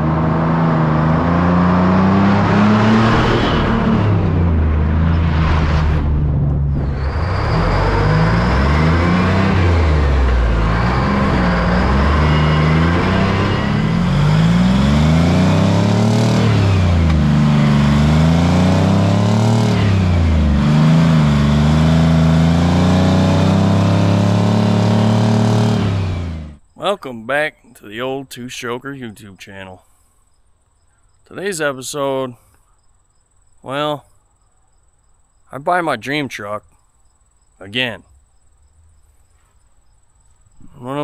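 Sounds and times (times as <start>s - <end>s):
truck diesel engine shifting gears: 0.0s - 26.6s.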